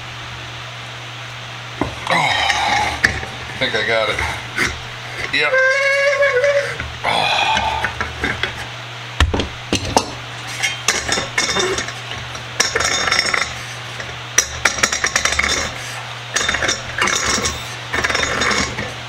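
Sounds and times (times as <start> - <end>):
threaded metal top grinding: 1.8 - 8.7, 10.4 - 19.0
metal clinks and scraping: 10.5 - 12.0, 12.6 - 15.8, 16.4 - 18.9.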